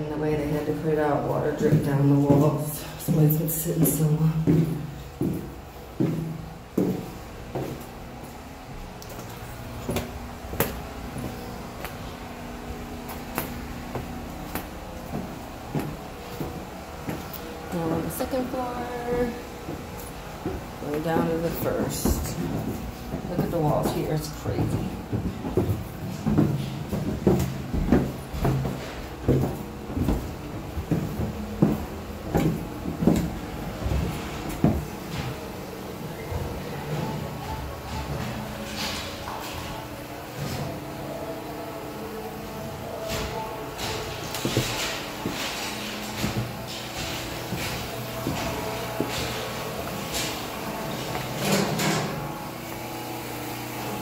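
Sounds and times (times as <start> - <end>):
footsteps on concrete with debris: 1.6 - 8.0, 19.7 - 35.4.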